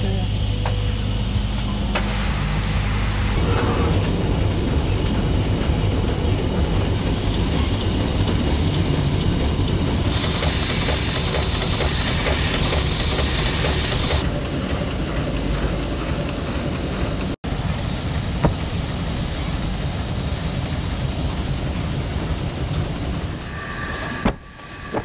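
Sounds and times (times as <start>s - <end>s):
machinery rumble and hiss: 0.0s - 25.0s
loud airy hiss: 2.0s - 4.6s, 10.1s - 14.2s.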